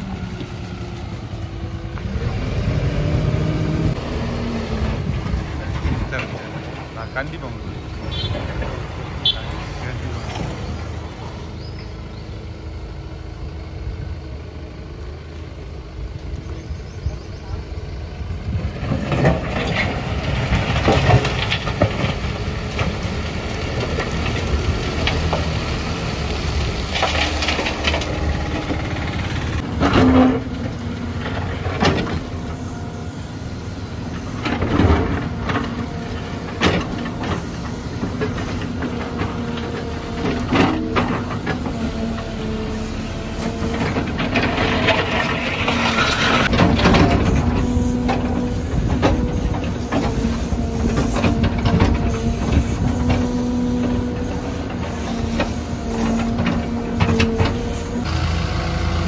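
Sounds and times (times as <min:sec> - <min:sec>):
diesel engine under load: 0:00.0 - 0:59.0
bucket scraping concrete rubble: 0:43.6 - 0:49.5.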